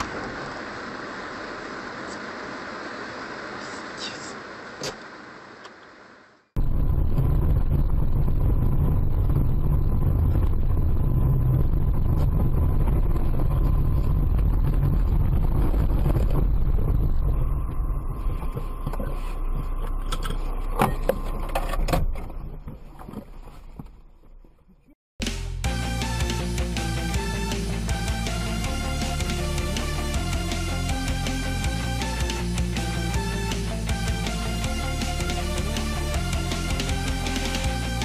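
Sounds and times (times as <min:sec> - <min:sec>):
car engine and road noise: 0:00.0 - 0:24.0.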